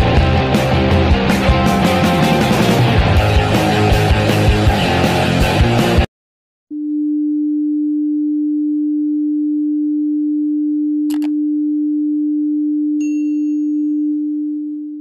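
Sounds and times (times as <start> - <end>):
low electronic sine tone: 6.7 - 15.0
short click: 11.1 - 11.4
brief high ding: 13.0 - 14.2.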